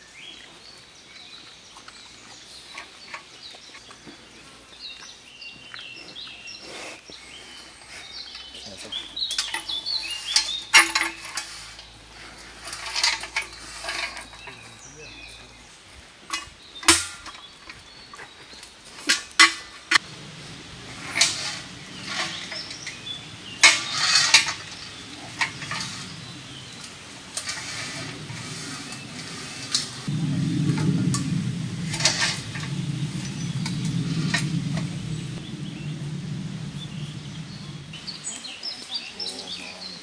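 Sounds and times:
metal keg knocking and clattering: 0:16.3 - 0:17.4
keg scraping: 0:19.4 - 0:30.1.

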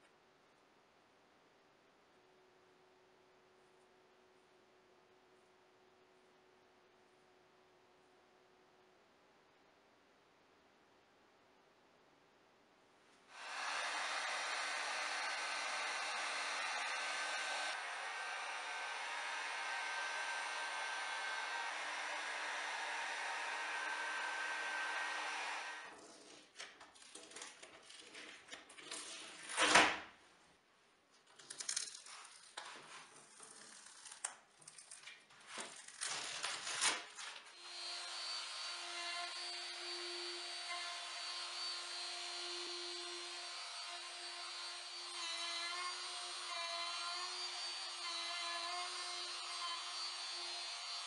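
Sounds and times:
heat gun blowing: 0:13.3 - 0:25.9
router humming: 0:13.3 - 0:26.0, 0:37.6 - 0:51.0
packing tape ripping: 0:31.4 - 0:37.5.

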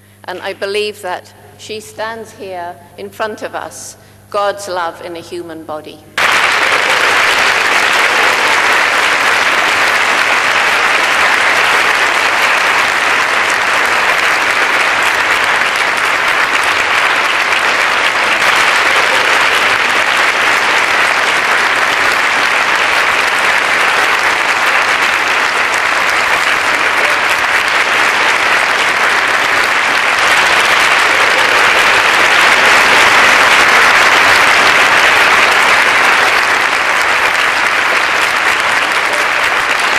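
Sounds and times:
audience applauding: 0:06.2 - 0:39.9.

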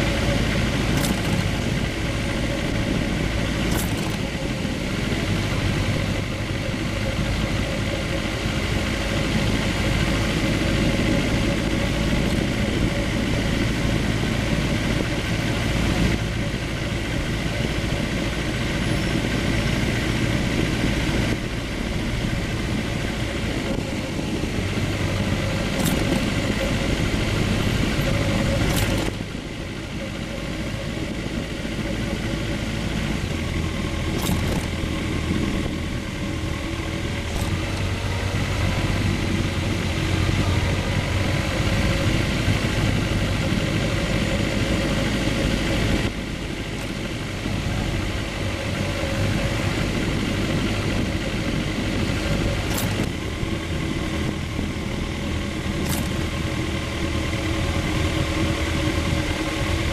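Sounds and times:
motorcycle engine at low revs: 0:00.0 - 0:59.9
road noise: 0:00.0 - 0:59.9.

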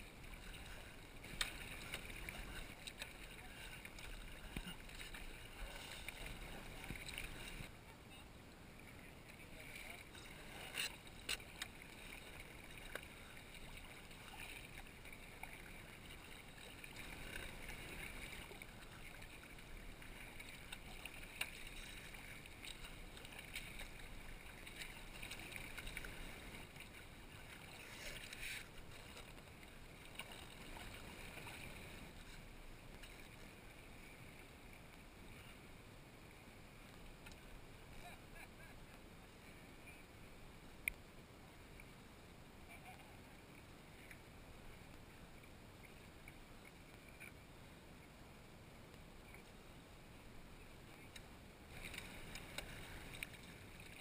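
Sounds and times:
kayak paddle splashing: 0:00.0 - 0:35.0, 0:50.2 - 0:54.0.

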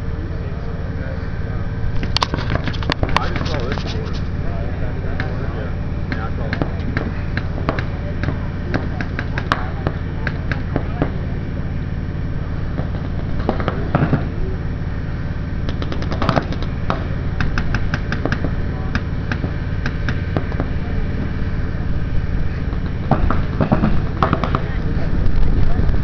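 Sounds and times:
steady low rumble: 0:00.0 - 0:26.0
paintball markers firing: 0:15.7 - 0:20.7.

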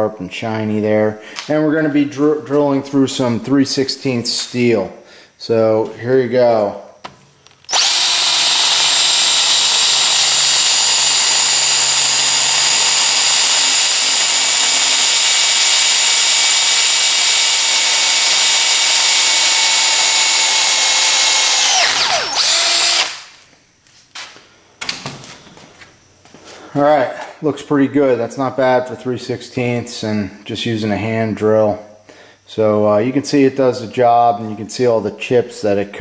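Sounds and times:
drill bit cutting steel: 0:07.7 - 0:23.2
hand drill whining: 0:07.7 - 0:23.2.

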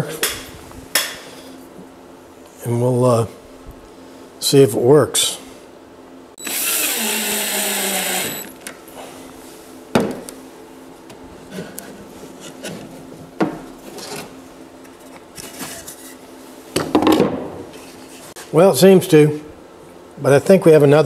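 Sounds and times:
cordless drill driving screw: 0:06.4 - 0:08.5.

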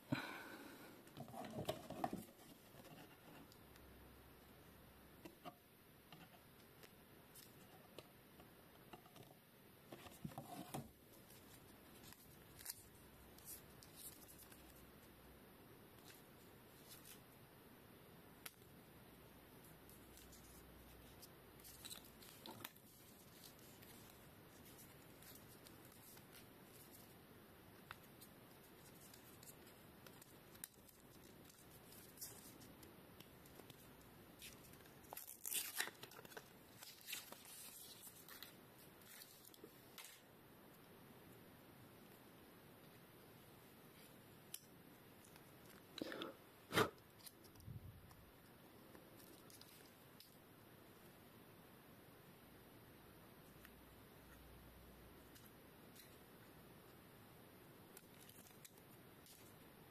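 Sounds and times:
light plastic rustling: 0:19.9 - 0:40.3.

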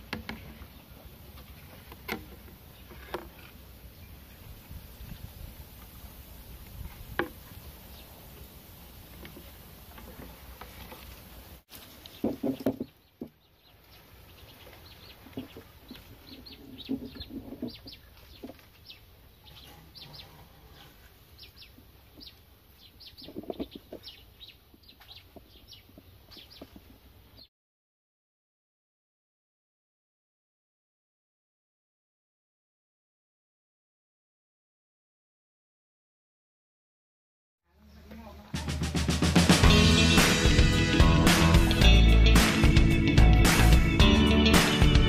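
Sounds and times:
chickens clucking: 0:14.5 - 0:27.0.

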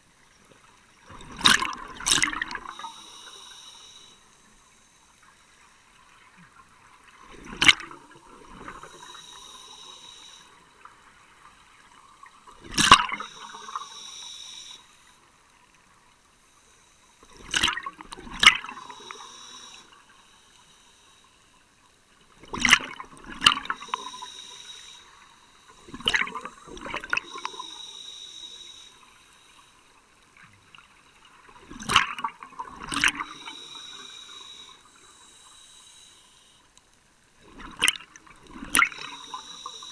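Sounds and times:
exhaled bubbles rushing underwater: 0:01.1 - 0:02.9, 0:25.8 - 0:27.7, 0:31.5 - 0:33.7
regulator hiss: 0:02.6 - 0:05.5, 0:08.1 - 0:10.9, 0:13.1 - 0:15.3, 0:18.6 - 0:21.6, 0:23.6 - 0:30.0, 0:33.1 - 0:36.7, 0:38.9 - 0:39.9.

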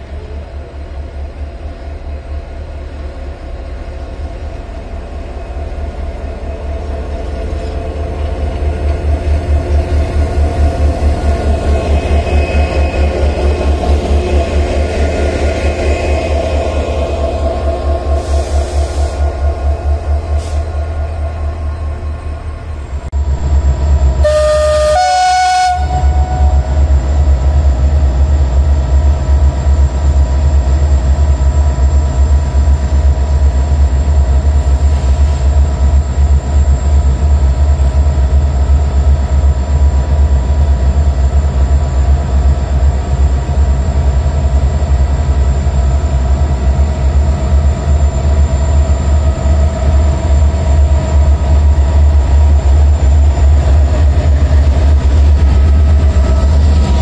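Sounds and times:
locomotive engine rumbling: 0:00.0 - 0:57.0
two-note locomotive horn: 0:24.2 - 0:26.8.

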